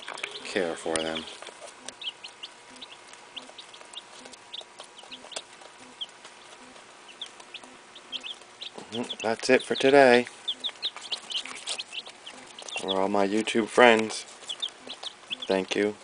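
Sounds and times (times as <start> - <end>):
chicks peeping: 0.0 - 16.0.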